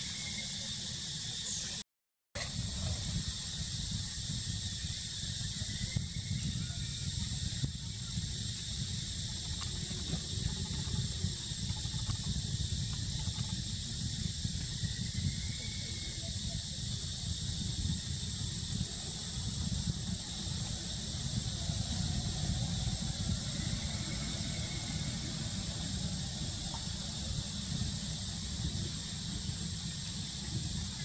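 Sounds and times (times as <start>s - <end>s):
high-pitched hiss: 0.0s - 1.8s, 2.4s - 31.0s.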